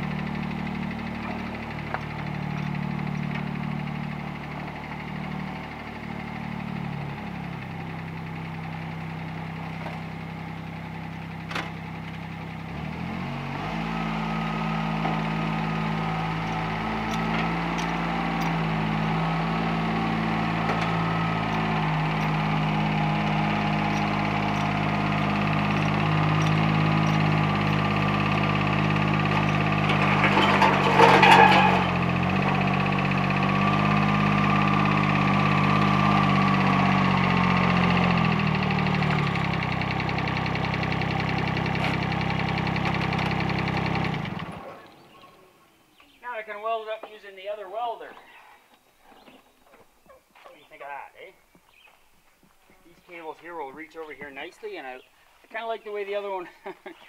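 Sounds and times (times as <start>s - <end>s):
utility vehicle engine running: 0.0s - 45.4s
loud clatter: 23.8s - 33.9s.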